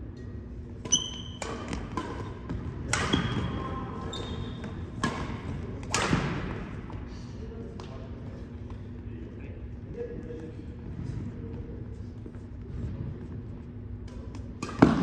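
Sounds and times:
rackets hitting shuttlecock: 0:00.2 - 0:07.0, 0:14.0 - 0:15.0.

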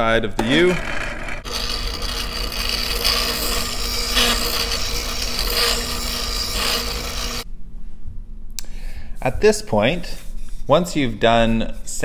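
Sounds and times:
spindle sander motor hum: 0:00.4 - 0:07.4
sanding drum scraping wood: 0:00.7 - 0:07.4.

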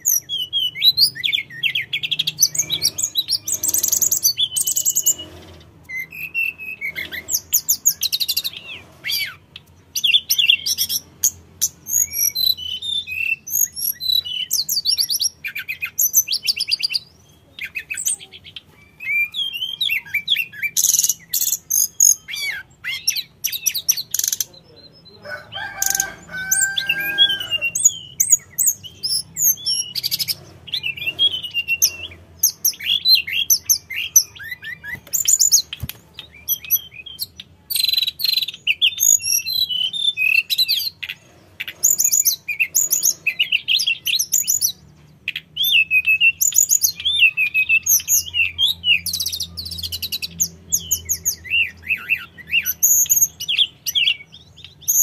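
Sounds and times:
lower bird call: 0:00.0 - 0:24.3, 0:25.1 - 0:44.7
bird singing trills and whistles: 0:00.0 - 0:55.0.

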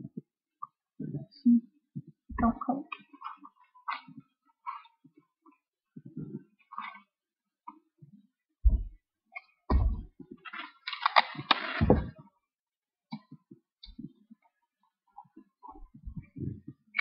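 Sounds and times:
paper rustling: 0:10.4 - 0:12.1.

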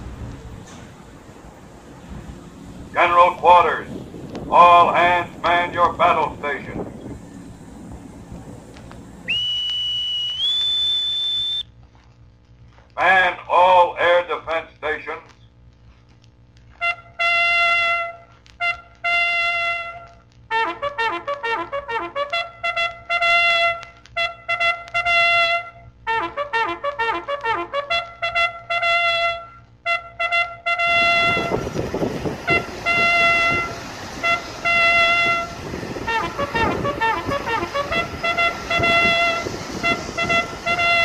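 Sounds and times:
loud even rushing noise: 0:00.0 - 0:10.0, 0:31.0 - 0:41.0
trumpet-led brass music: 0:02.7 - 0:09.3, 0:16.7 - 0:41.0.

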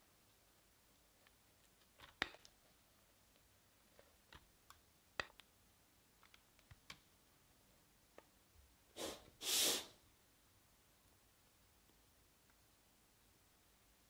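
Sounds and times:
short hissing swishes: 0:09.0 - 0:09.9.

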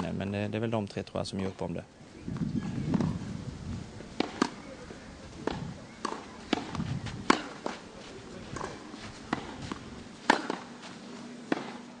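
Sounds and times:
tennis balls hit with rackets: 0:02.4 - 0:03.2, 0:04.1 - 0:12.0
balls bouncing on clay court: 0:04.2 - 0:04.7, 0:05.4 - 0:07.8, 0:08.5 - 0:10.7.

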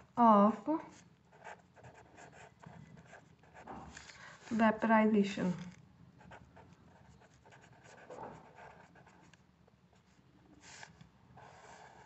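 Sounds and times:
pen scratching on paper: 0:00.9 - 0:04.0, 0:06.2 - 0:09.4, 0:10.0 - 0:12.0.

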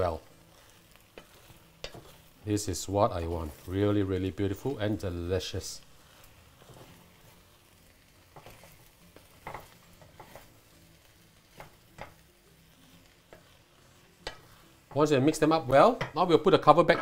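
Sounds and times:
spatula scraping a pot: 0:00.4 - 0:02.4, 0:06.0 - 0:07.6, 0:08.3 - 0:10.6, 0:11.5 - 0:15.4.

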